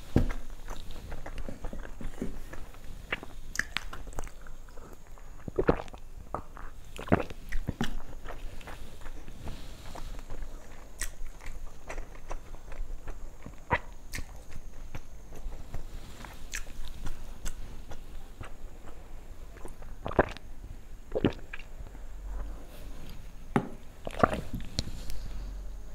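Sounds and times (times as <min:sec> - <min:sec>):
person chewing food: 0:00.0 - 0:20.5, 0:21.1 - 0:25.4
mouth clicks: 0:21.1 - 0:21.7.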